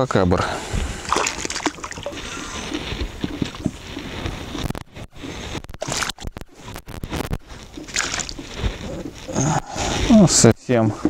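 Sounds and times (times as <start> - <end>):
fish splashing at surface: 1.0 - 2.3, 5.8 - 6.3, 7.8 - 8.4.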